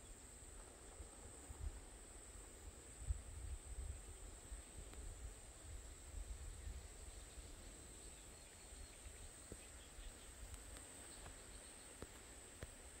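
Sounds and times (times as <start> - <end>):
faint clicks: 10.4 - 12.8.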